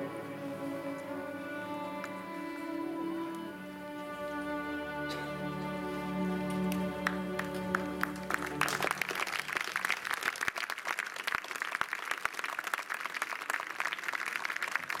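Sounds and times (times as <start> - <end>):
audience applause: 5.5 - 15.0.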